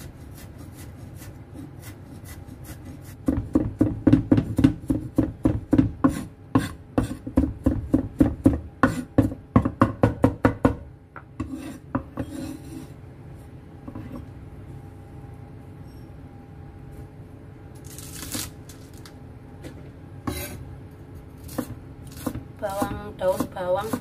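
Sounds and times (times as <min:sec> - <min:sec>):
cleaver chopping on wooden board: 0:03.2 - 0:10.8
blade scraping across board: 0:11.4 - 0:13.0.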